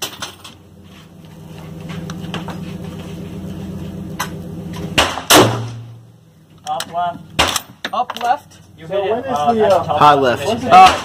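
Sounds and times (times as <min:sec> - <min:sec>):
low motor hum: 0:00.0 - 0:07.8
sharp crack: 0:04.2 - 0:06.0.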